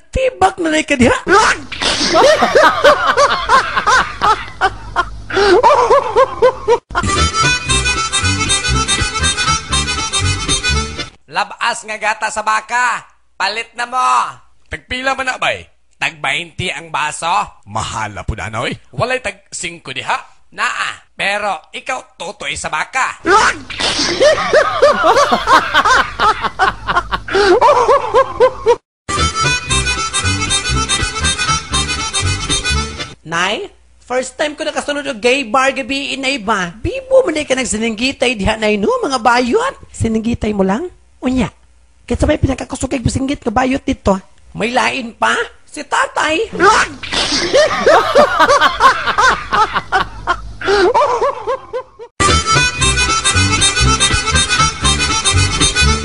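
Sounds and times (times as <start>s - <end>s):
person laughing: 1.3s - 7.8s, 23.3s - 28.8s, 46.6s - 52.7s
music: 7.0s - 11.2s, 29.1s - 33.2s, 52.2s - 56.0s.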